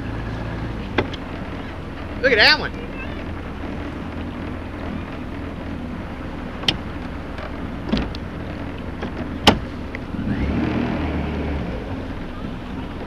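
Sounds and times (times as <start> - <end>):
boat motor running: 0.0 - 13.0
sharp knocks: 9.0 - 9.7.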